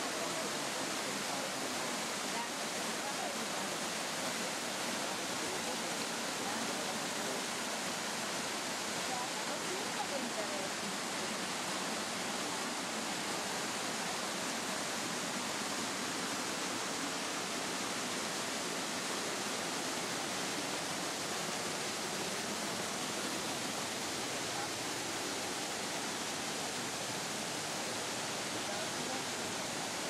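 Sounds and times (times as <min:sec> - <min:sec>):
stream water rushing over rocks: 0:00.0 - 0:30.0.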